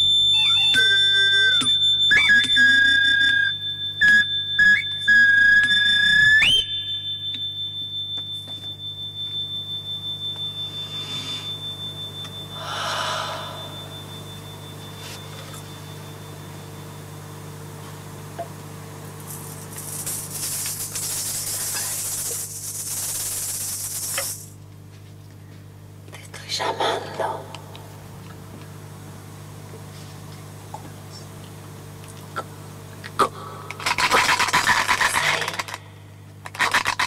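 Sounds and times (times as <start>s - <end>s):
low electronic drone: 0.0s - 4.1s, 9.6s - 17.3s
high thin tone: 10.0s - 16.6s
noisy swell: 12.5s - 14.4s.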